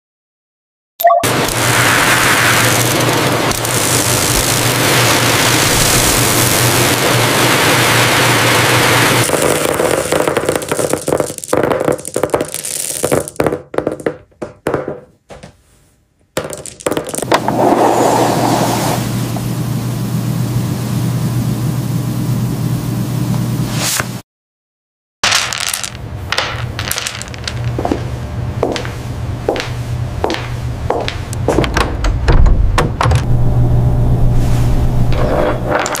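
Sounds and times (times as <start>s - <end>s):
pearls rattling down metal chutes: 1.5s - 6.8s, 7.5s - 14.1s, 16.4s - 17.4s, 25.2s - 28.1s, 35.7s - 36.0s.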